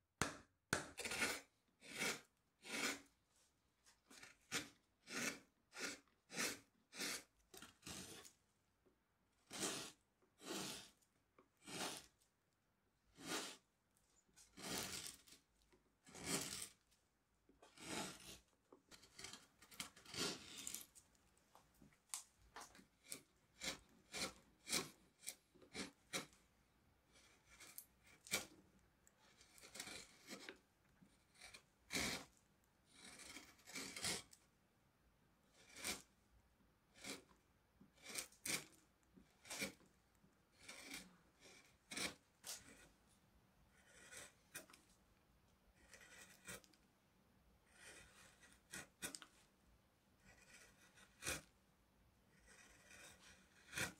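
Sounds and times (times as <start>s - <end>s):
carving gouge slicing wood: 0.2s - 3.1s, 4.1s - 8.3s, 9.4s - 11.0s, 11.6s - 12.2s, 13.1s - 13.7s, 14.4s - 16.8s, 17.6s - 21.0s, 22.6s - 26.4s, 27.1s - 34.4s, 35.5s - 36.2s, 36.8s - 43.0s, 43.6s - 45.0s, 45.7s - 46.9s, 47.6s - 49.5s, 50.2s - 51.6s, 52.2s - 53.9s.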